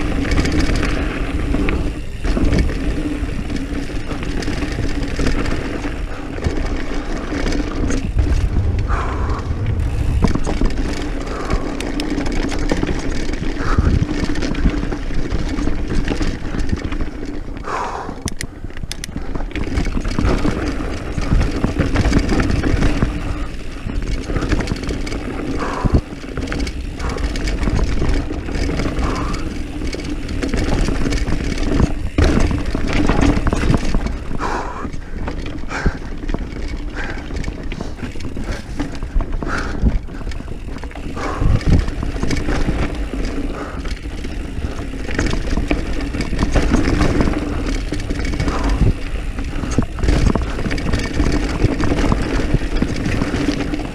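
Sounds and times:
bike tyres rattling over dirt: 0.0 - 53.9
wind buffeting microphone: 6.0 - 14.2, 19.9 - 53.9.

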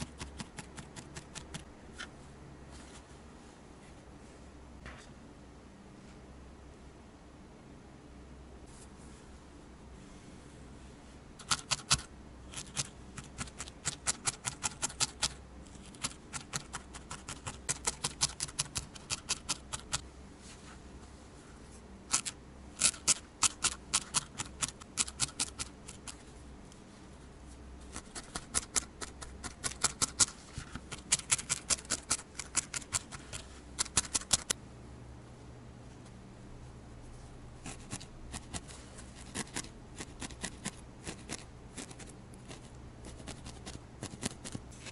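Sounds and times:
felting needle poking wool: 0.0 - 2.1, 11.4 - 20.0, 22.1 - 26.3, 27.8 - 34.6, 37.6 - 44.9.

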